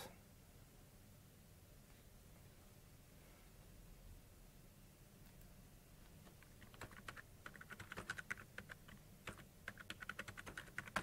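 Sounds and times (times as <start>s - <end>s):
typing on computer keyboard: 6.3s - 11.0s.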